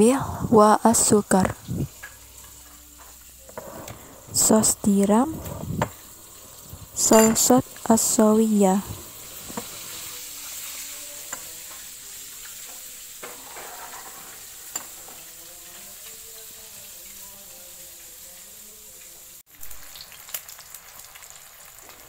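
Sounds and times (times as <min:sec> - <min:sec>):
egg sizzling in hot oil: 0:00.6 - 0:22.0
oil crackling and popping: 0:15.0 - 0:22.0.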